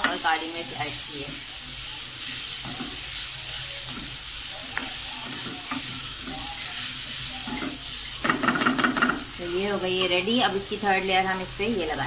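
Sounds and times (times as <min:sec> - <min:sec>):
cabbage sizzling in a frying pan: 0:00.0 - 0:12.0
spatula scraping a pan: 0:02.2 - 0:09.2.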